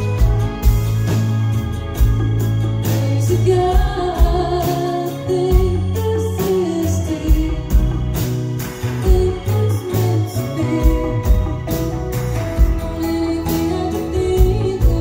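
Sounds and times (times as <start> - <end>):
bass: 0.0 - 15.0
drums beating steadily: 0.0 - 15.0
woman singing: 2.8 - 8.3, 9.0 - 11.8, 12.6 - 15.0.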